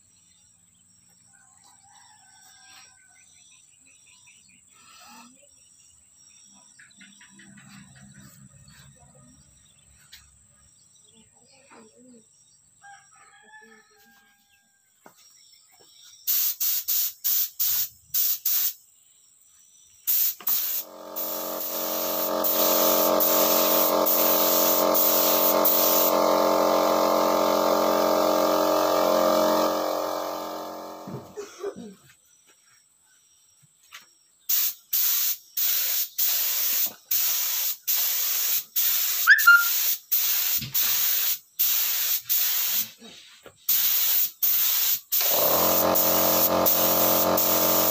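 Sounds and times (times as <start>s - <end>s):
paint spray gun blasts: 16.3s - 18.8s, 20.1s - 31.4s, 34.5s - 43.0s, 43.7s - 47.9s
air compressor running: 20.1s - 31.4s, 34.6s - 42.9s, 43.7s - 47.9s.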